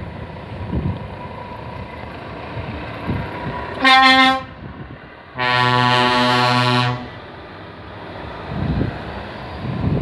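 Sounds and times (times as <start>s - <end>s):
truck air horn: 3.8s - 4.6s, 5.4s - 7.2s.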